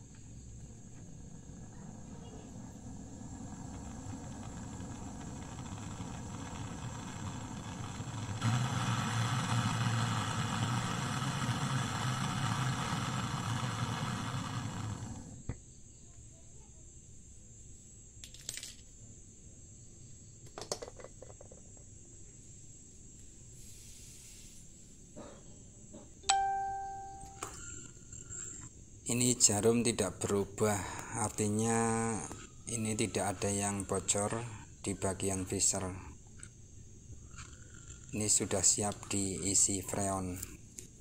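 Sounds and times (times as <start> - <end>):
gas torch hissing: 0.0 - 15.6, 23.5 - 25.0, 27.2 - 36.4, 37.0 - 41.0.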